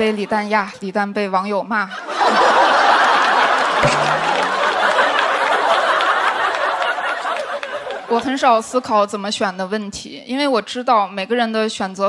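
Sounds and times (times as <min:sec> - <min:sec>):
audience laughing and applauding: 0:02.0 - 0:08.3.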